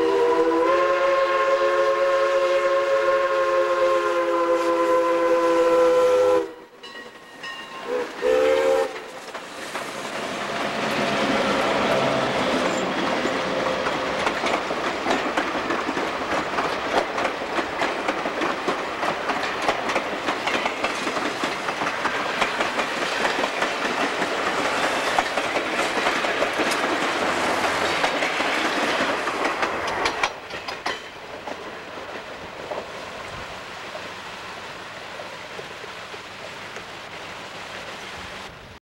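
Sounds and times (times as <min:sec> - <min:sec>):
steam locomotive whistle: 0:00.0 - 0:06.9, 0:07.8 - 0:09.2
train passing with steady rush: 0:00.0 - 0:38.8
clickety-clack of train wheels: 0:06.8 - 0:34.1, 0:35.0 - 0:36.9.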